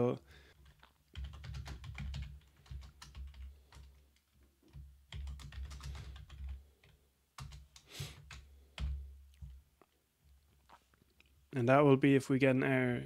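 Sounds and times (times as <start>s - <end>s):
typing on a computer keyboard: 0.5s - 9.6s.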